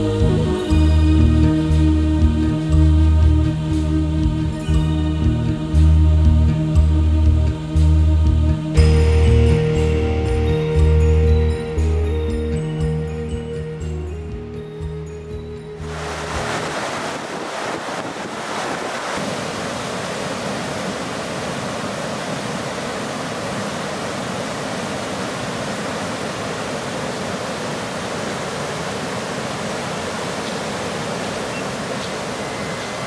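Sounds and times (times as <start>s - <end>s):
river rushing over rocks: 15.8s - 33.0s.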